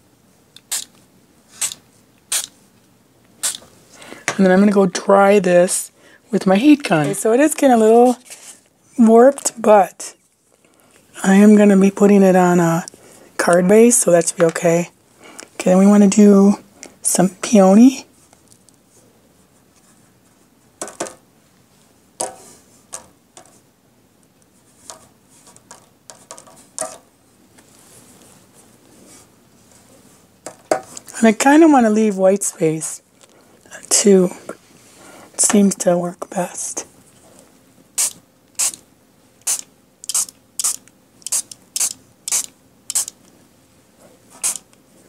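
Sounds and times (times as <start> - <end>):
spray bottle hissing sprays: 0.6 - 0.9, 1.5 - 2.5, 3.4 - 3.6, 38.0 - 38.8, 39.4 - 43.2, 44.4 - 44.7.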